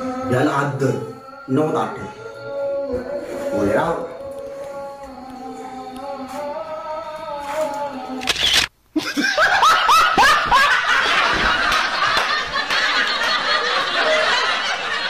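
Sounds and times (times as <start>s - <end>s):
people laughing: 9.0s - 15.0s.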